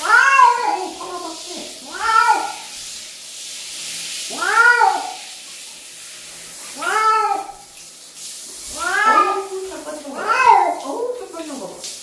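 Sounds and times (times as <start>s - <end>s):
cat yowling: 0.0s - 2.7s, 4.3s - 5.2s, 6.8s - 7.6s, 8.7s - 10.9s
shower head spraying water: 0.0s - 12.0s.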